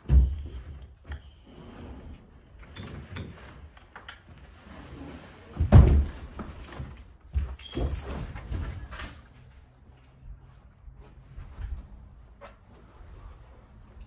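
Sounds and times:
sofa scraping and knocking on stairs: 0:04.9 - 0:08.9.

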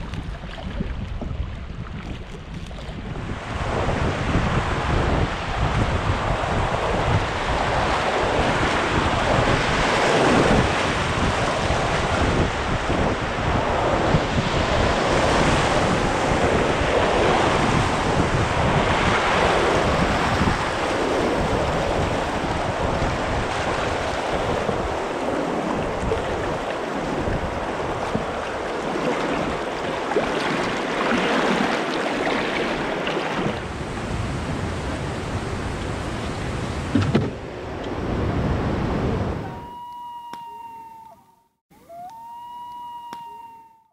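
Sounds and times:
wind buffeting microphone: 0:00.0 - 0:39.8
rushing whitewater: 0:15.0 - 0:36.5.

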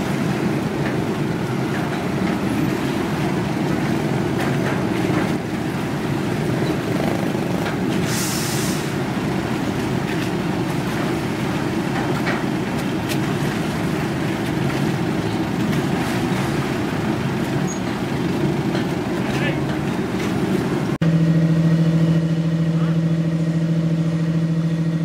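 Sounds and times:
low engine rumble: 0:00.0 - 0:25.0
short hiss: 0:08.1 - 0:08.9.

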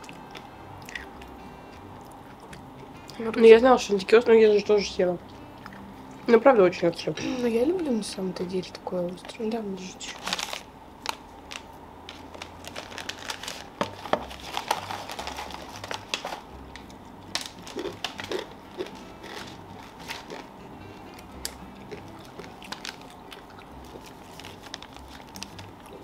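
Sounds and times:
crunchy chewing: 0:00.0 - 0:03.2, 0:14.4 - 0:20.5, 0:21.1 - 0:26.0
plastic packets crinkling: 0:09.2 - 0:20.5, 0:21.4 - 0:26.0.

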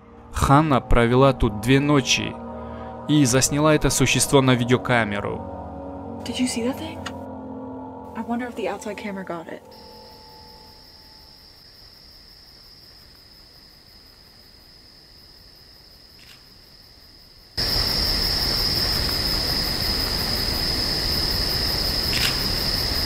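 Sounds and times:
crickets trilling: 0:08.1 - 0:23.0.

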